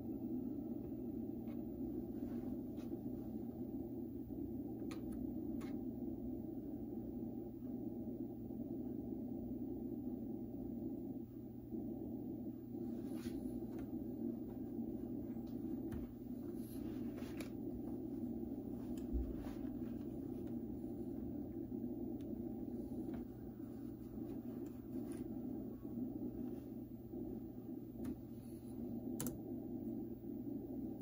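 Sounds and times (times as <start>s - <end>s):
low room hum: 0.0s - 31.0s
faint clicks: 29.1s - 29.5s.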